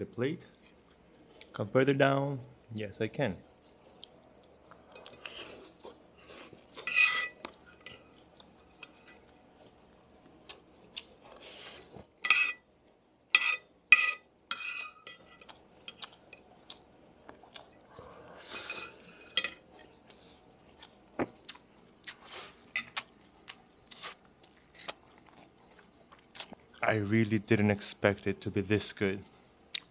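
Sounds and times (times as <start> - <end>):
metal utensils clinking on plate: 6.8 - 9.2, 12.2 - 12.6, 13.4 - 16.2, 18.4 - 19.7.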